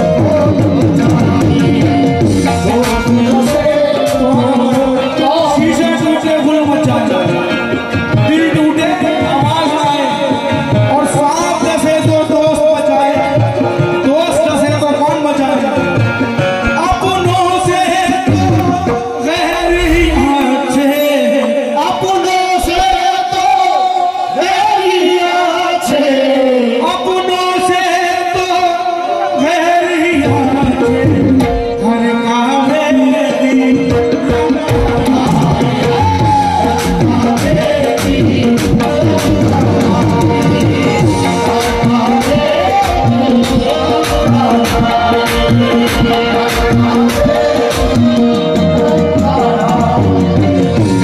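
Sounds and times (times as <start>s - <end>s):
person singing with pitch slides: 18.2s - 22.5s
low drum beats: 18.3s - 20.8s
held drone: 19.4s - 20.6s
voice-like melodic line: 19.4s - 22.3s.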